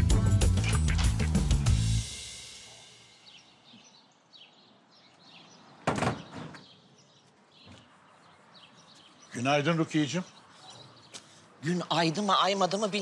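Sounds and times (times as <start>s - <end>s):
birds chirping: 0.1s - 13.0s
door shutting with a thud: 5.8s - 6.6s.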